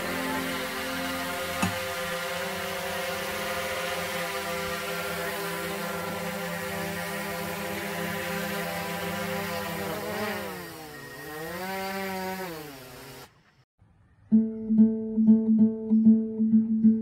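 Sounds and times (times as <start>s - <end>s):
drone propellers buzzing: 0.0s - 13.3s.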